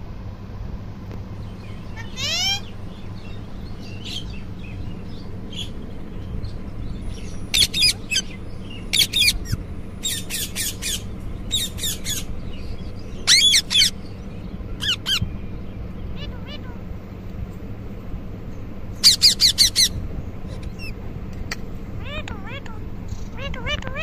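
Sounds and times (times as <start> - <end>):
parrot squawking: 1.9 - 2.7, 7.5 - 12.3, 13.2 - 14.0, 14.8 - 15.3, 16.1 - 16.9, 19.0 - 21.0, 22.0 - 24.0.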